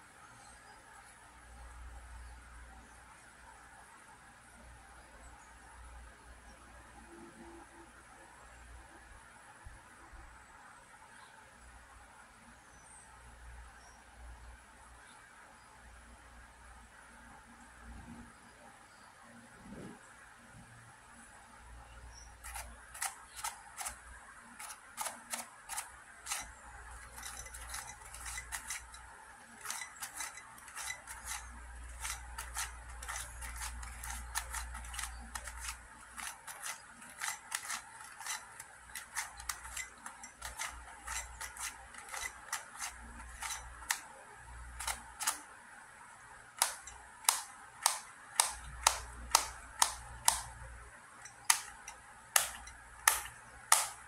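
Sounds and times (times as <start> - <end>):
puzzle cube clicking: 22.4 - 45.5, 46.6 - 50.7, 51.3 - 54.0.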